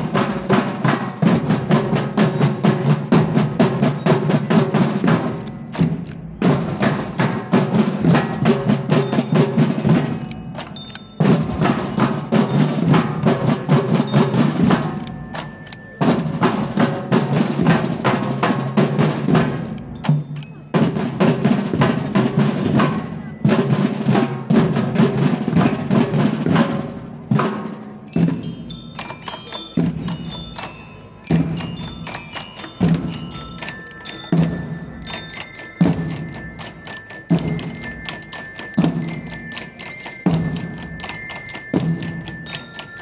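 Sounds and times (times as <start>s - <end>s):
bell lyre notes: 28.1s - 43.0s.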